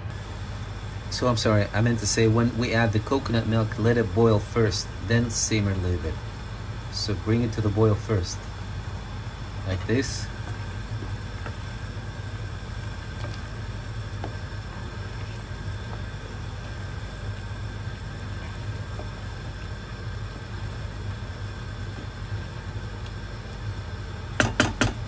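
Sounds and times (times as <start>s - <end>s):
stove hum and rushing: 0.0s - 25.0s
spoon knocking pot: 24.4s - 25.0s.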